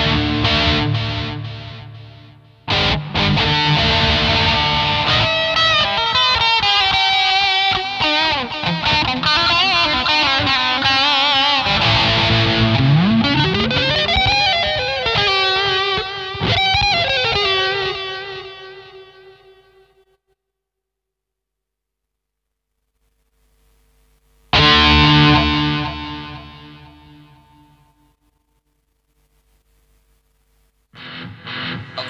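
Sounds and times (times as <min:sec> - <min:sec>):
electric guitar lead: 0:00.0 - 0:20.0, 0:24.5 - 0:28.1, 0:31.0 - 0:32.0.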